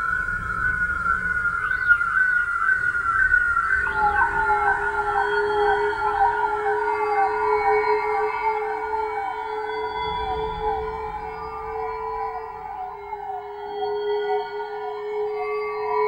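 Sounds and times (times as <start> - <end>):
siren-like wailing tones: 0.0 - 16.0
lower wails: 3.7 - 16.0.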